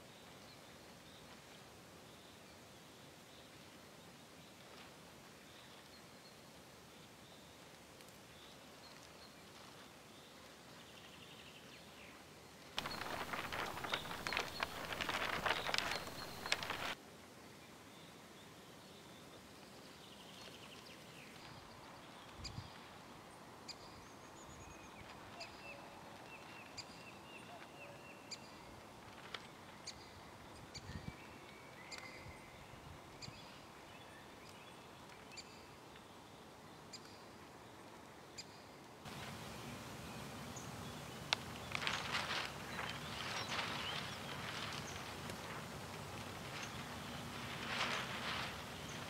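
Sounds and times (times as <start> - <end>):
songbirds chirping: 5.4 - 17.0, 17.6 - 49.0
loud rustling: 12.8 - 17.0, 39.1 - 49.0.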